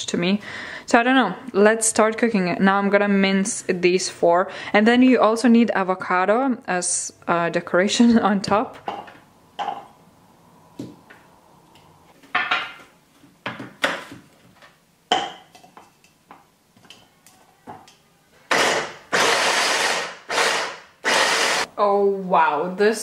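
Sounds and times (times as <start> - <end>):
hand blender chopper pulsing: 18.5 - 21.7.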